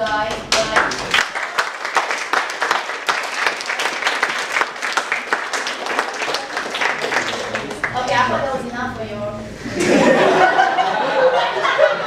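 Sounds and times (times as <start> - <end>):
people applauding: 0.4 - 8.4.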